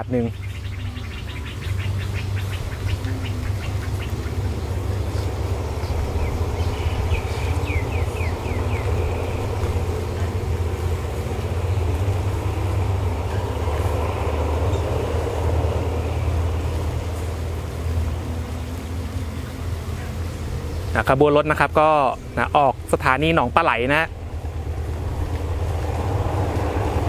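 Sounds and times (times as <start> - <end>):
bird chirps: 0.0 - 10.3
locomotive engine drone: 0.0 - 27.0
train coaches rumbling: 0.0 - 27.0.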